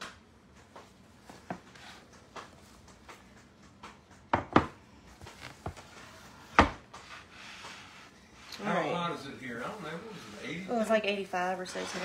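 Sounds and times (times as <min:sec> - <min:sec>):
objects knocking on countertop: 0:03.8 - 0:04.8, 0:06.5 - 0:06.9.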